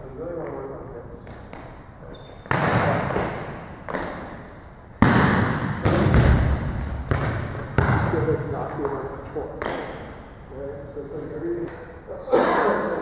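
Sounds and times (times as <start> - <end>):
heavy thuds echoing: 2.4 - 8.9.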